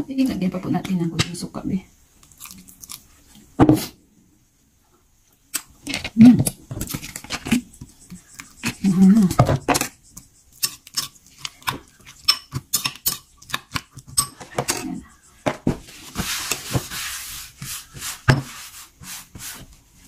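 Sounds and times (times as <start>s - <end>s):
metal spoon scraping ceramic bowl: 5.9s - 15.5s
soft hiss: 14.7s - 20.0s.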